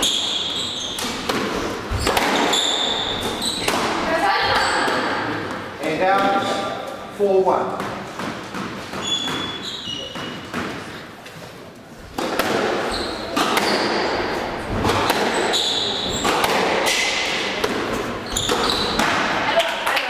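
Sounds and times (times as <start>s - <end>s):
shoe squeaks on wooden floor: 0.0s - 1.3s, 1.9s - 3.7s, 8.8s - 10.5s, 12.8s - 14.1s, 15.3s - 16.3s, 18.0s - 19.0s
squash ball struck by rackets: 1.0s - 4.1s, 7.7s - 10.9s, 12.1s - 19.9s.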